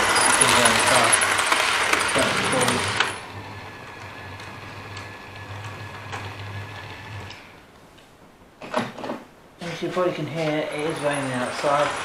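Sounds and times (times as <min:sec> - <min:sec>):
model train motor humming: 0:00.0 - 0:07.5, 0:10.7 - 0:12.0
wheels clicking on track: 0:00.0 - 0:07.5, 0:10.4 - 0:12.0.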